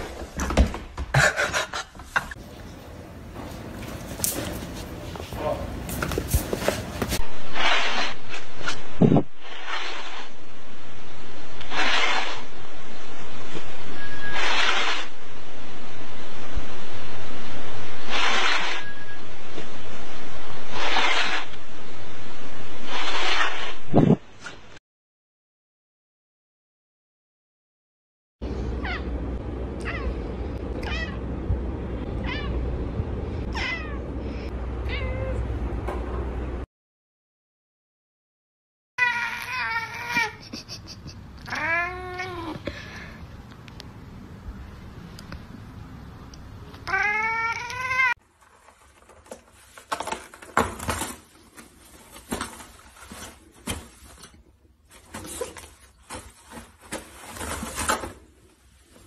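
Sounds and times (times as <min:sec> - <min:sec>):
cat meowing: 0:30.8 - 0:31.2, 0:32.2 - 0:32.6, 0:33.5 - 0:34.0, 0:34.8 - 0:35.4, 0:39.0 - 0:40.4, 0:41.5 - 0:42.6, 0:46.8 - 0:48.2
toilet paper rustling: 0:48.2 - 0:59.0.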